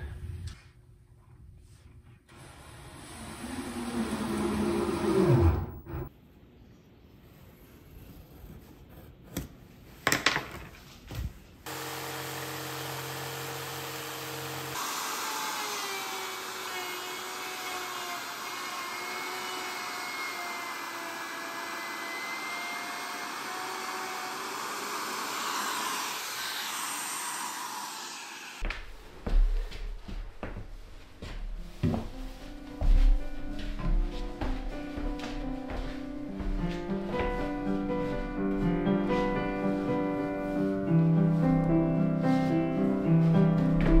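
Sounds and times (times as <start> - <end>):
router motor hum: 2.3 - 6.1, 11.7 - 28.6
router cutting plywood: 2.4 - 6.1, 11.7 - 28.6.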